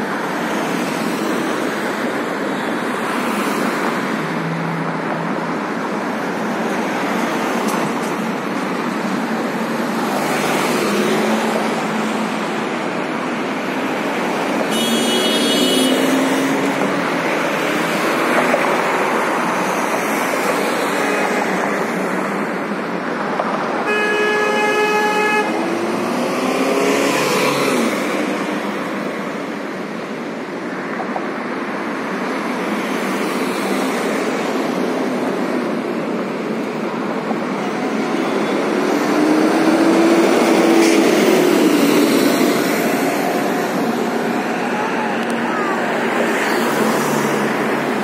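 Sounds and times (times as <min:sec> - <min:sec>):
vehicles driving past: 0:00.0 - 0:48.0
car horn: 0:14.7 - 0:16.3, 0:23.8 - 0:25.6.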